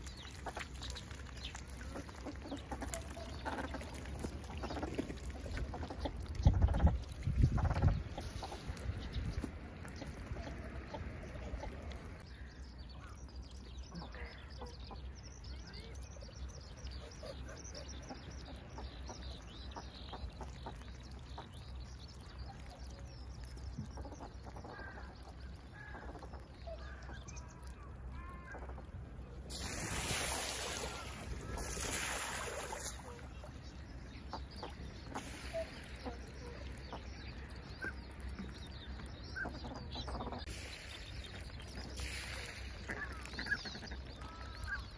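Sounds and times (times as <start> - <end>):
ducks calling: 0.0 - 13.2, 23.8 - 44.9.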